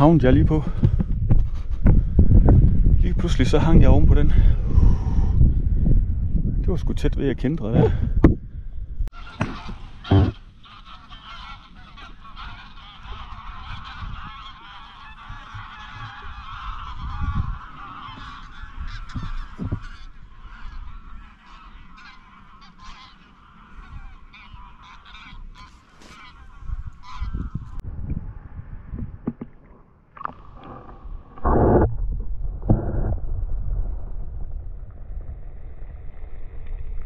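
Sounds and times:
geese honking in flight: 9.1 - 27.8.

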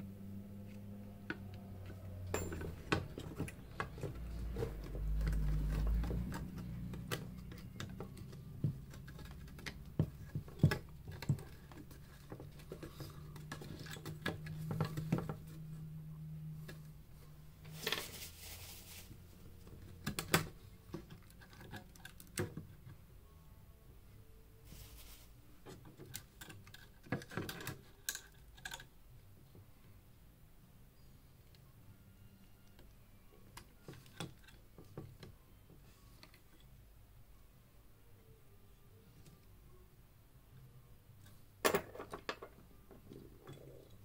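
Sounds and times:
hands and tools clicking and scraping: 0.6 - 16.0, 19.5 - 23.0, 25.6 - 29.0, 41.2 - 44.0.

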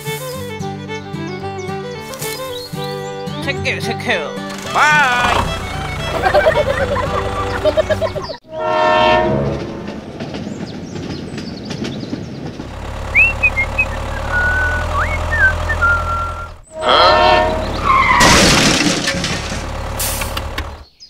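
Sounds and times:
tractor engine running: 0.2 - 8.4, 9.7 - 20.9
train horn tooting: 8.4 - 10.0, 16.7 - 18.1
short whistling chirps: 13.2 - 16.5
crash: 18.0 - 20.4.

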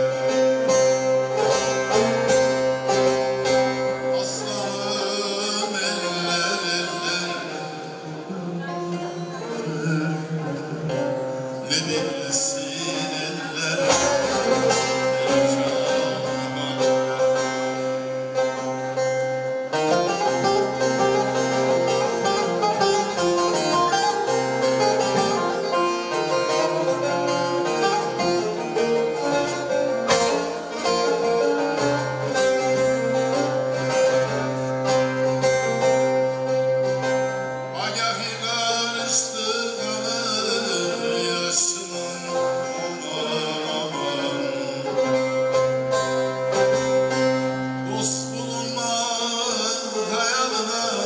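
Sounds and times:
man singing: 0.0 - 18.7, 37.6 - 51.0
long-necked lute playing: 0.0 - 51.0.

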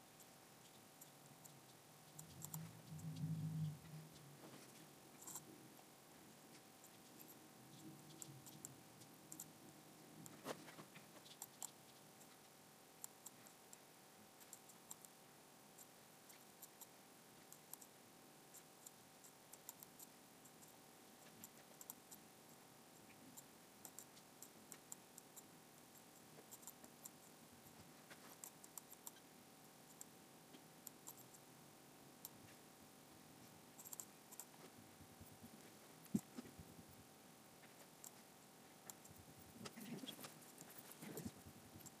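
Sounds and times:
faint steady high hum: 0.0 - 42.0
computer mouse clicks: 0.2 - 3.3, 5.2 - 5.5, 8.1 - 9.6, 14.4 - 15.2, 21.3 - 22.2, 23.4 - 25.4, 28.2 - 29.2, 30.8 - 31.4, 33.8 - 34.5.

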